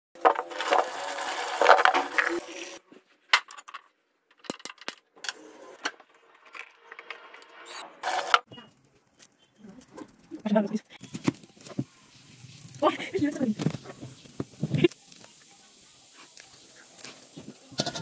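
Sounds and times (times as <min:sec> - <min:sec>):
water running into a steel sink: 0:00.2 - 0:02.8.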